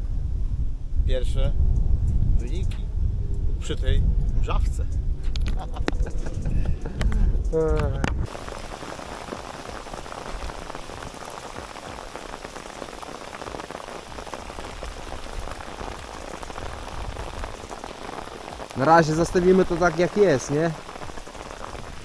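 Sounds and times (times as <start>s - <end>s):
drizzle falling: 8.2s - 22.0s.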